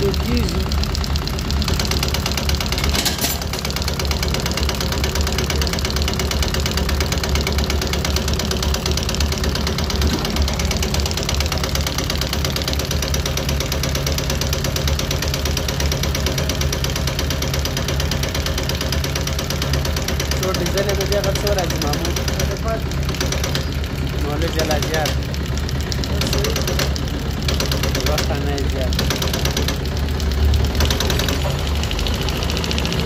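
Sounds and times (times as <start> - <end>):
injection nozzles clattering: 0.0 - 33.0
test bench drive hum: 0.0 - 33.0.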